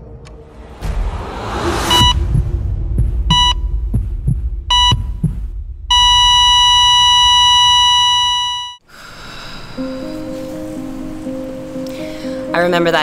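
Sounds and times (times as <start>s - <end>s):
low rumble: 0.0s - 8.4s
heartbeat thuds: 1.8s - 8.2s
flatline tone: 1.9s - 2.2s, 3.3s - 3.8s, 4.7s - 8.8s
heart monitor beeps: 1.9s - 2.2s, 3.3s - 3.7s, 4.7s - 8.8s.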